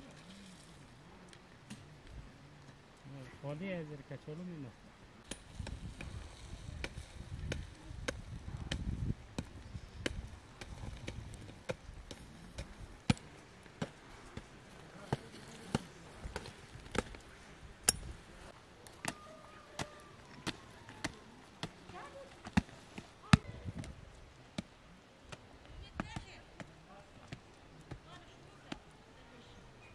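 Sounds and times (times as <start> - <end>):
hatchet chopping earth clods: 5.2 - 17.2, 18.9 - 23.5.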